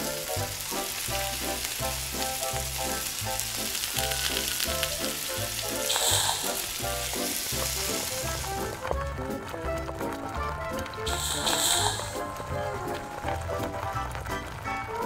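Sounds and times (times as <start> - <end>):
hiss of cream in hot pan: 0.0 - 8.8, 11.0 - 12.2
butter sizzling in a wok: 0.0 - 9.6, 10.8 - 13.8
wooden spatula stirring: 0.9 - 14.3.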